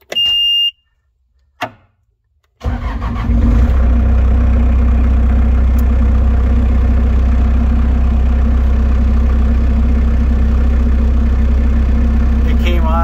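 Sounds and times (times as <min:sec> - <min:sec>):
diesel engine idling: 0:02.6 - 0:13.0.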